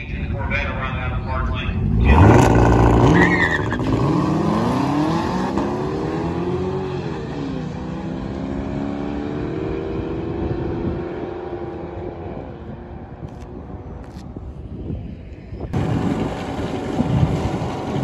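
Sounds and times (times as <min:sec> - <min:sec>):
cars launching at full throttle: 0:01.8 - 0:12.5.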